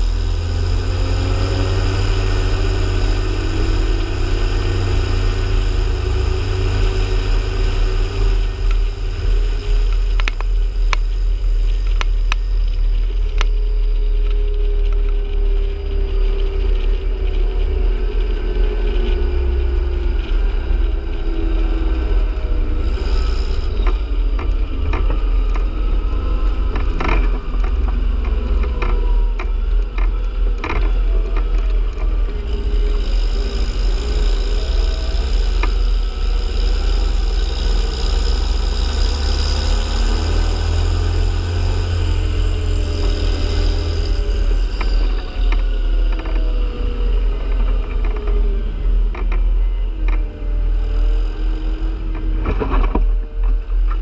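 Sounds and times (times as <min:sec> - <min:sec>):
engine deep rumble: 0:00.0 - 0:54.0
sharp clicks and knocks: 0:26.4 - 0:35.9, 0:47.4 - 0:50.2, 0:52.1 - 0:54.0.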